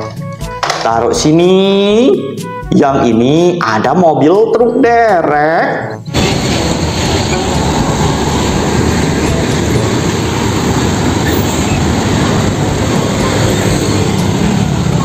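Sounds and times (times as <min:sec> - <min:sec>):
engine and road noise: 0:05.9 - 0:15.0
motorcycles: 0:06.1 - 0:15.0
truck driving past: 0:06.1 - 0:15.0.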